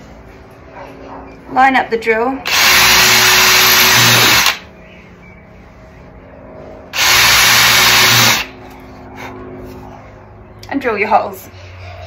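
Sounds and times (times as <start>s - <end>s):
cordless drill drilling into wood: 2.5s - 4.6s, 7.0s - 8.5s.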